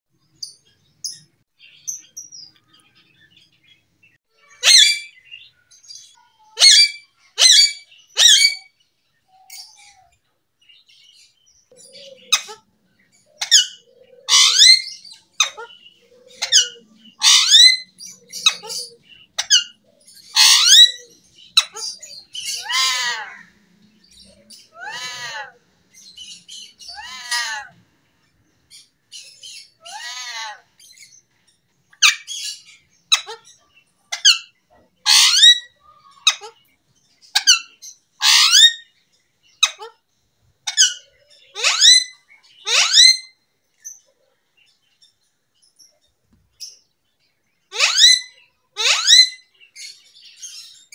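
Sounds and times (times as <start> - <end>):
parakeet squawking: 4.4 - 5.2, 6.4 - 8.7, 13.4 - 23.5, 24.6 - 25.5, 26.3 - 27.8, 29.8 - 30.6, 32.0 - 36.7, 37.4 - 38.8, 39.6 - 39.9, 40.7 - 43.3, 47.7 - 49.4.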